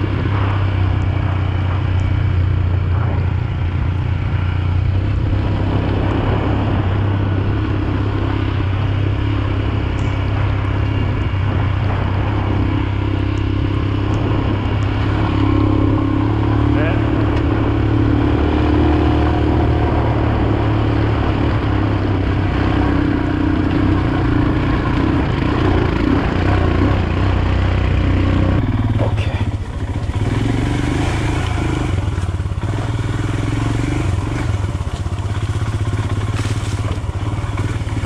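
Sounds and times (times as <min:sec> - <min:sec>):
motorcycle engine running: 0:00.0 - 0:38.0
stones clattering under tyres: 0:34.4 - 0:38.0.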